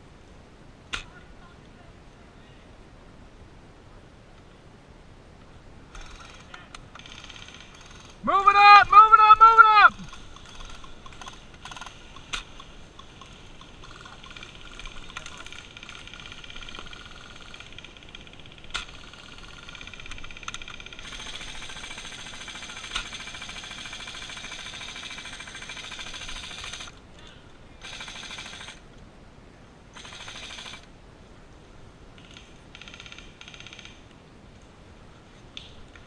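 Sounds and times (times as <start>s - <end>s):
airsoft rifles firing bursts: 6.0s - 26.9s, 27.8s - 28.8s, 30.0s - 30.8s, 32.2s - 34.0s.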